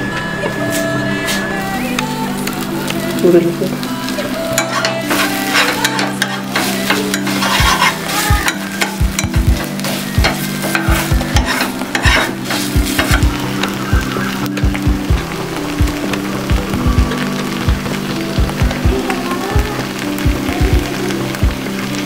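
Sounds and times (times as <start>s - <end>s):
onions sizzling in a pan: 0.0s - 22.0s
metal spatula scraping a pan: 4.5s - 13.8s.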